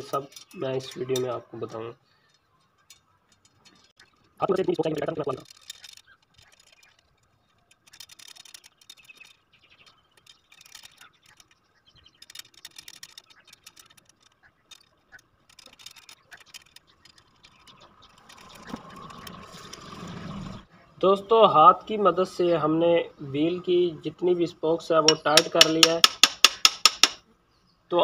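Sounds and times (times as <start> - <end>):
metallic clicking of wheel spokes: 2.1 - 20.0, 25.1 - 27.2.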